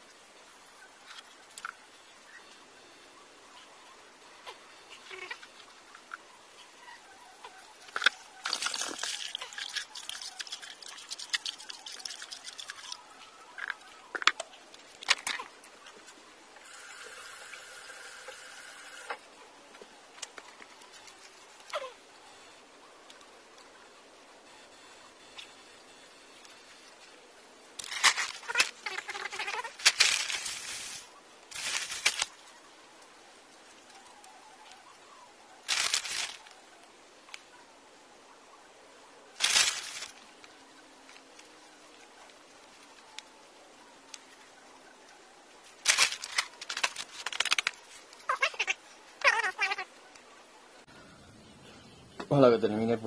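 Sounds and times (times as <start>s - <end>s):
large sack crinkling and rustling: 29.7s - 32.3s, 35.7s - 36.5s, 39.4s - 40.2s, 45.8s - 48.0s.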